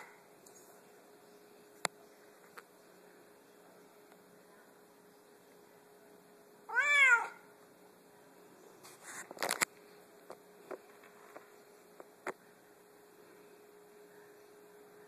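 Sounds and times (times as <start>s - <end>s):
cat meowing: 6.7s - 7.4s.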